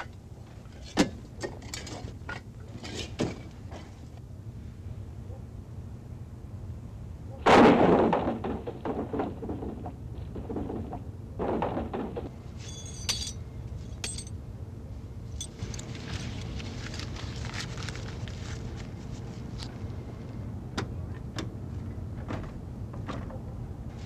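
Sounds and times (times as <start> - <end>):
bricks knocking and clattering: 7.8 - 13.3
sharp metallic clinks: 12.6 - 14.4.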